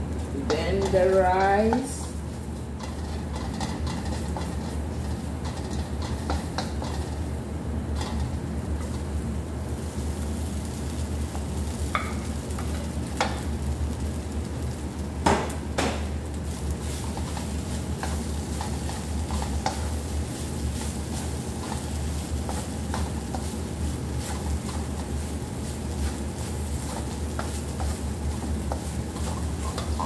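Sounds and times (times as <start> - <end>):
light sizzle: 0.0 - 30.0
wooden spoon scraping a pan: 0.3 - 7.3, 7.9 - 9.1, 16.8 - 30.0.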